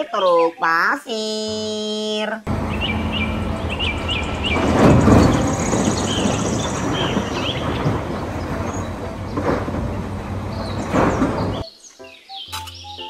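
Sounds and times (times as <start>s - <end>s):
heavy diesel machinery hum: 2.5s - 11.6s
birds chirping: 2.5s - 13.0s
earth falling into truck bed: 3.9s - 11.6s.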